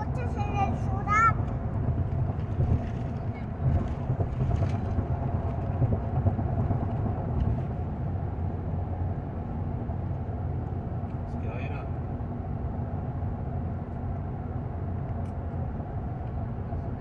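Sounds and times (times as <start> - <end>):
vehicle rumble inside cabin: 0.0 - 17.0.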